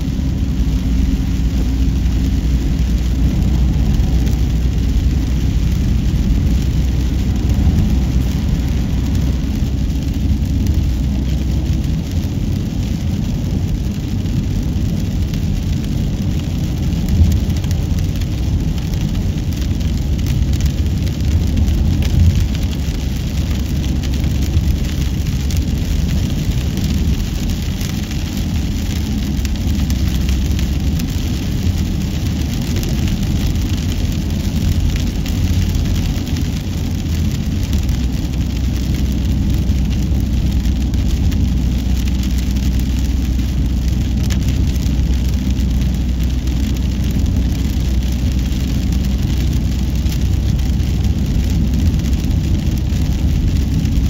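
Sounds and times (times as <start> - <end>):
car tyres and engine rumbling: 0.0 - 54.0.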